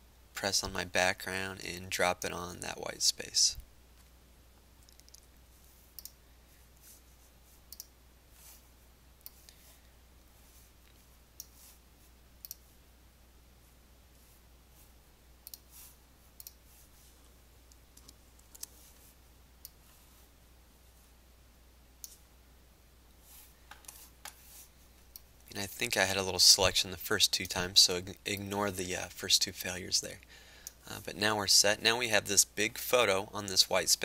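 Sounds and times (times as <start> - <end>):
faint low hum: 0.0 - 34.0
computer mouse clicks: 4.8 - 5.3, 5.9 - 6.2, 7.7 - 7.9, 9.2 - 9.6, 12.4 - 12.7, 15.4 - 15.8, 16.4 - 16.6, 17.7 - 18.8.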